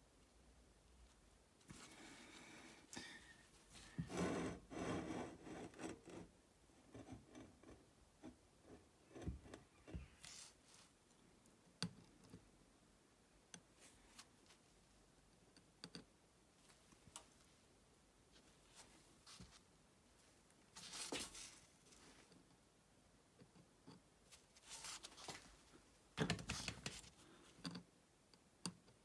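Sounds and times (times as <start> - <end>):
gloved hands rustling and scraping: 20.7 - 22.3, 24.3 - 25.8.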